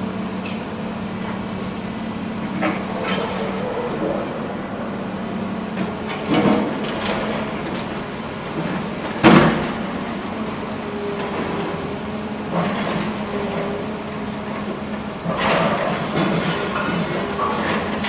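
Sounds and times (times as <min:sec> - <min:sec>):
excavator engine running: 0:00.0 - 0:18.0
scrap metal clanking: 0:02.5 - 0:04.4.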